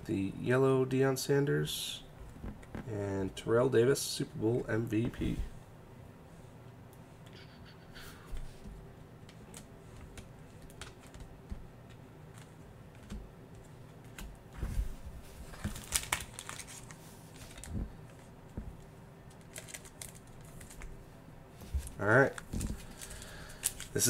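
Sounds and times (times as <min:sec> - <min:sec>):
cards clicking and tapping: 0:09.2 - 0:14.4
foil wrapper crinkling: 0:15.4 - 0:18.3, 0:19.3 - 0:20.9, 0:22.3 - 0:24.0.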